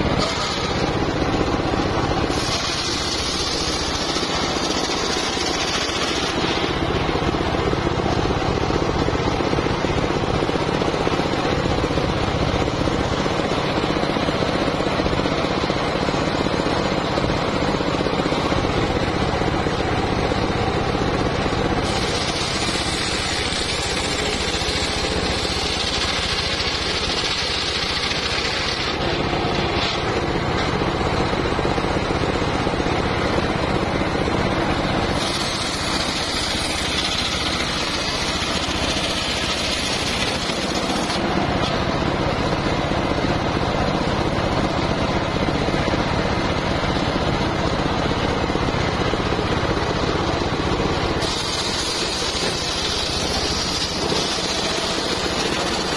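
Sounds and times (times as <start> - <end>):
saw blade whining in wood: 0.0 - 14.7, 20.1 - 31.0, 34.7 - 41.8, 51.1 - 55.9
circular sawmill running: 0.0 - 55.9.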